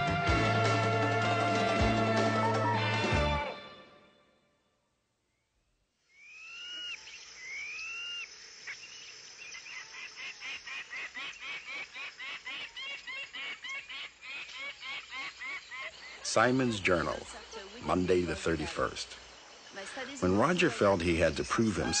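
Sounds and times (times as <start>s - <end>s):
whistled bird calls: 6.1s - 11.7s.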